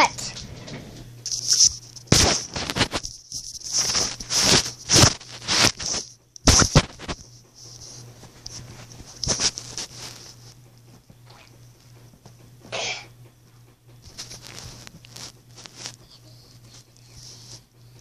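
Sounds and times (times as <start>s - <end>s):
steady low hum: 0.0s - 18.0s
rustling on a bed: 0.4s - 11.0s, 14.0s - 17.6s.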